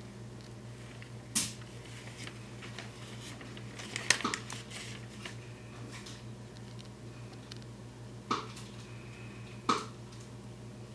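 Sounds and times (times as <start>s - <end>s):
squirrel crunching and clicking: 0.4s - 5.4s, 6.0s - 7.7s.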